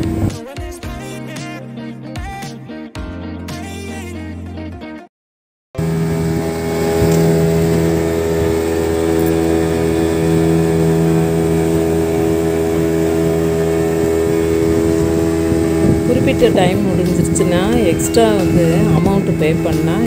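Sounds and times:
motorboat engine droning: 0:00.0 - 0:00.4, 0:05.8 - 0:20.0
water rushing around hull: 0:00.0 - 0:00.4, 0:05.8 - 0:20.0.

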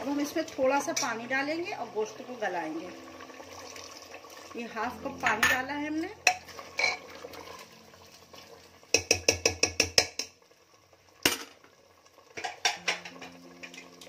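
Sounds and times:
ladle clinking in metal pot: 0:06.2 - 0:07.1, 0:12.4 - 0:13.9
ladle knocking on pot: 0:08.9 - 0:10.4, 0:12.4 - 0:13.4.

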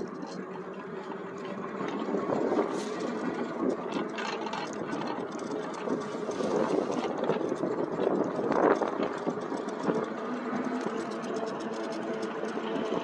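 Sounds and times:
electric bike whirring: 0:00.0 - 0:13.0.

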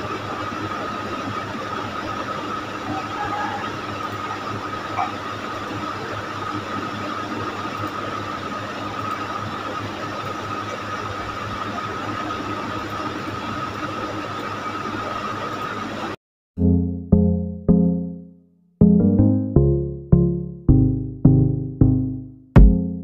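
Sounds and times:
constant high whine: 0:00.0 - 0:16.2
low hum: 0:16.6 - 0:23.0.

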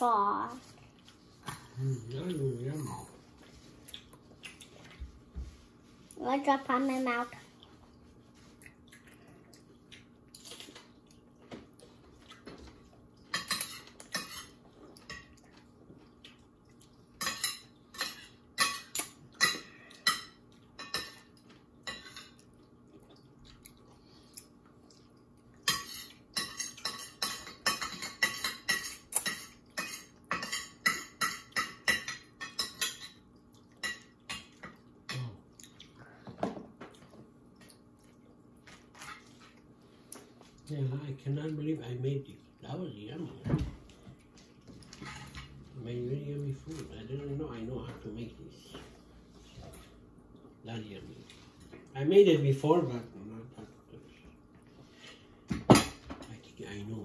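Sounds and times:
cutlery clinking against a dish: 0:13.3 - 0:15.4, 0:25.6 - 0:33.2.

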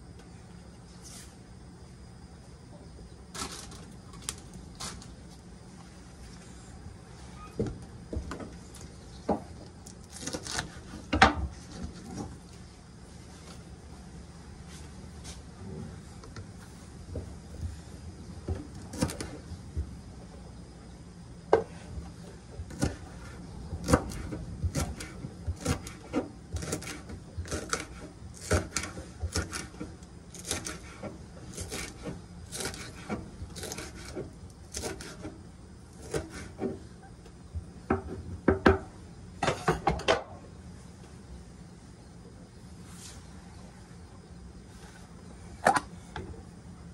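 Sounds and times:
knife chopping on wooden board: 0:23.8 - 0:26.0.

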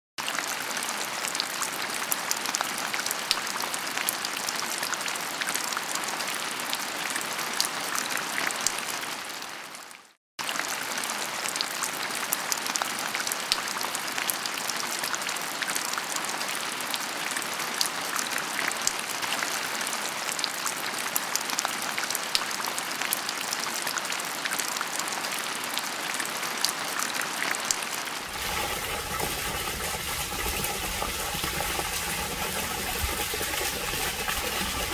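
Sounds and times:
water splashing and pattering: 0:27.4 - 0:34.9.

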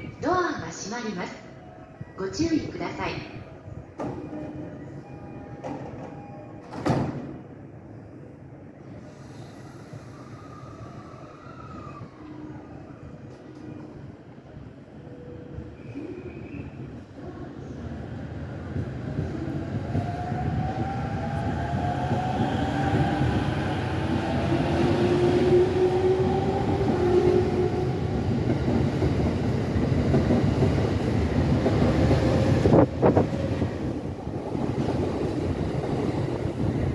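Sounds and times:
wheels rumbling on rail: 0:18.6 - 0:36.9.

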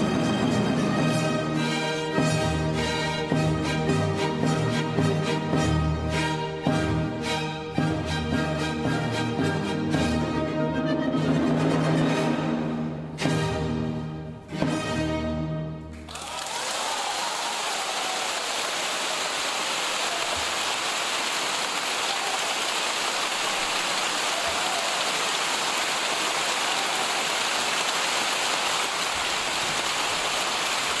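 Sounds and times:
audience applauding: 0:16.1 - 0:31.0.

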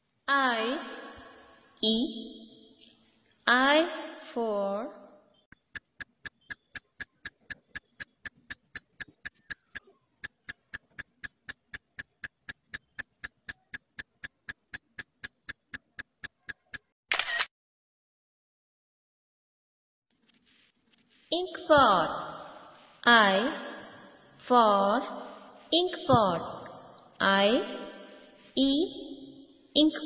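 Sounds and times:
sharp ticking: 0:05.5 - 0:16.9.

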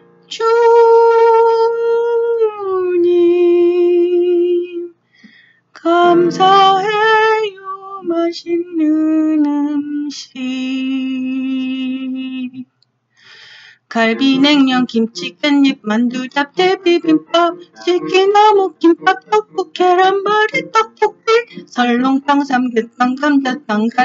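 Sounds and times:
woman singing long notes: 0:13.9 - 0:24.0.

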